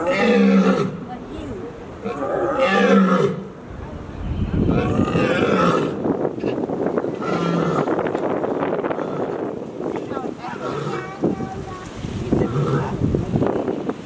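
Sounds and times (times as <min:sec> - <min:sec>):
lioness roaring: 0:00.0 - 0:01.0, 0:02.0 - 0:03.5, 0:04.7 - 0:06.0.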